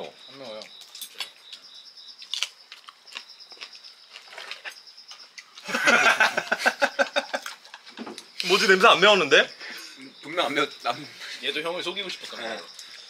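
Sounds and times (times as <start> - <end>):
faint steady chirping: 0.0 - 13.0
crunchy chewing: 0.4 - 8.8.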